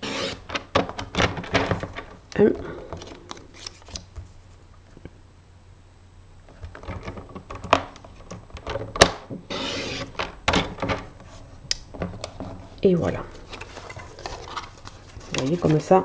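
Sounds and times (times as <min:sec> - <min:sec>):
blade cutting paper: 0:00.0 - 0:00.5, 0:09.5 - 0:10.2.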